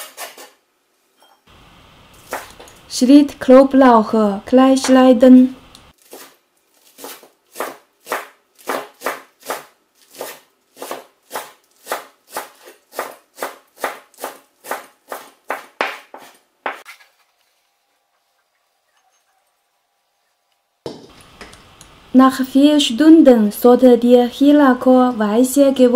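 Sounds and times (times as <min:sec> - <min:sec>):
cleaver chopping on cutting board: 0:02.2 - 0:02.6, 0:07.0 - 0:16.8.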